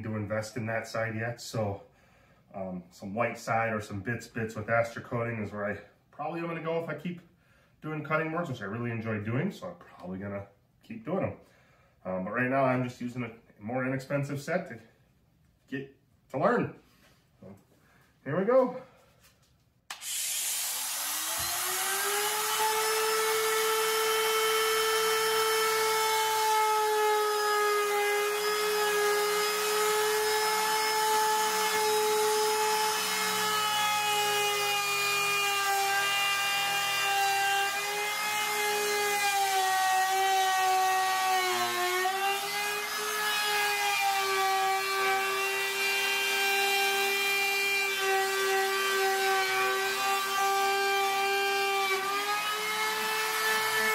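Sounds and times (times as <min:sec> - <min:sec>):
router whining and cutting wood: 0:19.9 - 0:53.9.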